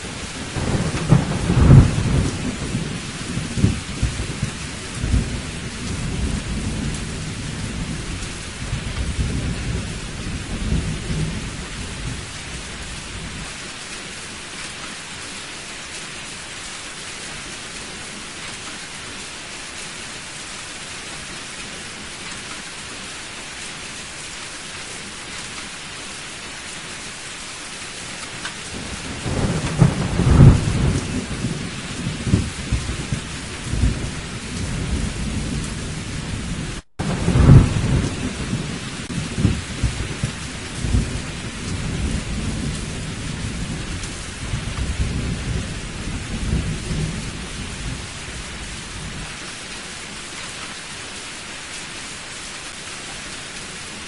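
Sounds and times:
thunder rumbling: 0:00.0 - 0:13.5, 0:28.7 - 0:49.3
heavy rain falling: 0:00.0 - 0:54.0
loud thunder claps: 0:00.5 - 0:12.1, 0:28.7 - 0:48.0.

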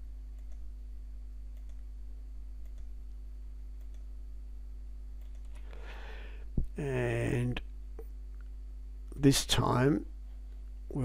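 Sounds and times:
low electrical hum: 0:00.0 - 0:11.0
faint mouse clicks: 0:02.6 - 0:03.0.

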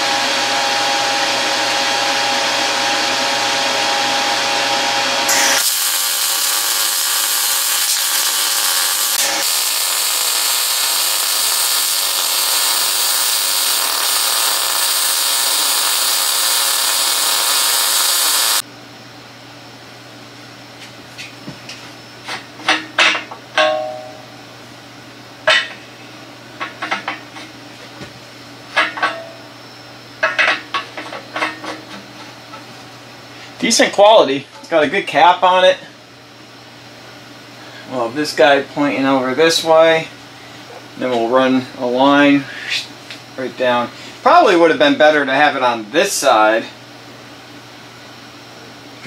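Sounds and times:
welding hiss: 0:05.3 - 0:18.6.

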